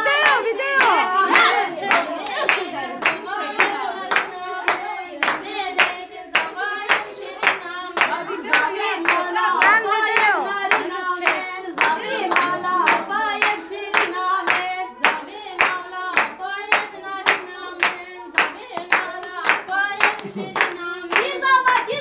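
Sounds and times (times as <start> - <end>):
rhythmic hand clapping: 0.0 - 22.0
women singing together: 0.0 - 22.0.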